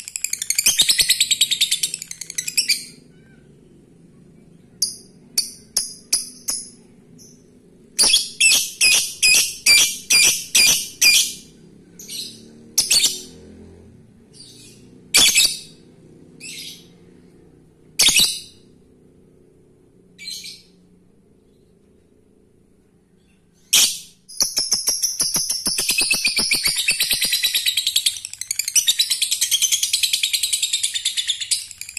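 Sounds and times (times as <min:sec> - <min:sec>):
lovebird chirping: 0:00.0 - 0:03.4, 0:04.8 - 0:13.4, 0:14.3 - 0:15.8, 0:23.2 - 0:31.9.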